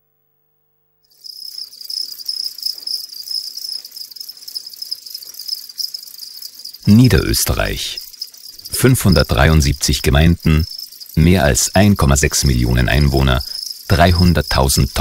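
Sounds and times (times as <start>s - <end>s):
crickets chirping: 1.0s - 15.0s.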